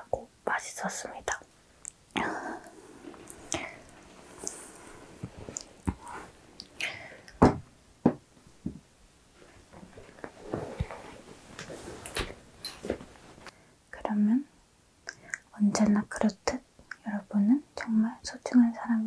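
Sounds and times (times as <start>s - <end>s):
clothing rustling against microphone: 2.2s - 6.8s, 8.5s - 13.5s.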